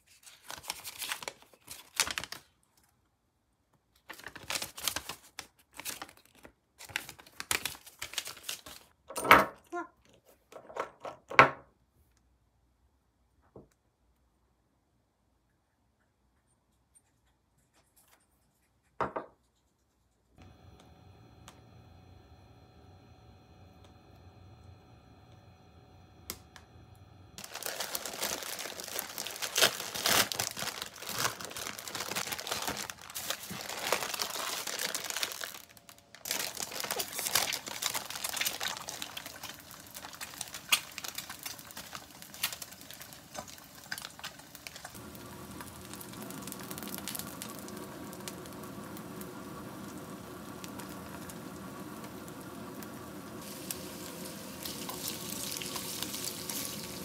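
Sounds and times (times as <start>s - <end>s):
plastic packaging crinkling and tearing: 0.0s - 3.0s, 4.0s - 9.0s, 27.4s - 48.6s, 53.4s - 57.0s
meat sizzling in a frying pan: 36.5s - 57.0s.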